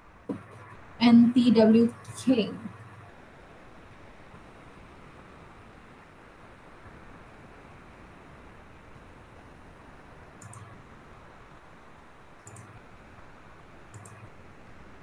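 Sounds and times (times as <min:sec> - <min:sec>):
faint steady hiss: 0:00.0 - 0:15.0
computer mouse double clicks: 0:10.4 - 0:10.7, 0:12.4 - 0:12.7, 0:13.9 - 0:14.2.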